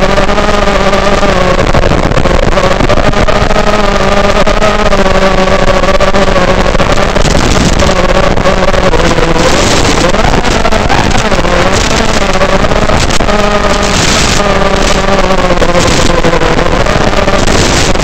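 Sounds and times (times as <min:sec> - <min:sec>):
quadcopter motors buzzing: 0:00.0 - 0:18.0
rush of air: 0:07.1 - 0:16.1.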